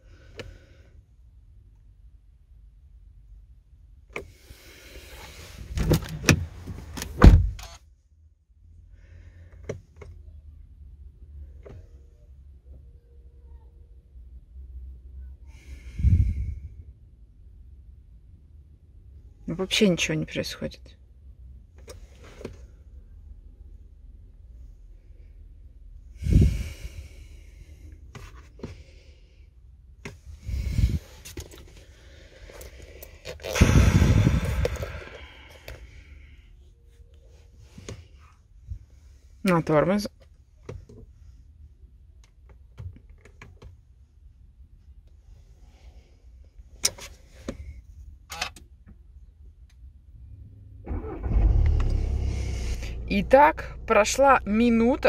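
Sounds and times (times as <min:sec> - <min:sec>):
person breathing out heavily: 0:26.2 - 0:28.0, 0:30.4 - 0:31.2, 0:31.8 - 0:36.6
diesel engine cranking and running: 0:50.5 - 0:55.0.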